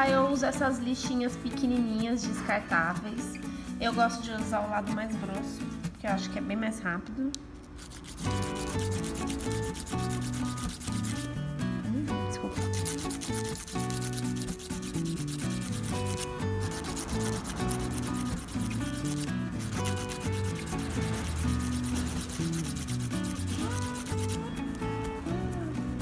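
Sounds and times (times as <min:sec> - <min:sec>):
nail file rasping on fingernail: 0:07.6 - 0:11.3, 0:12.5 - 0:24.8.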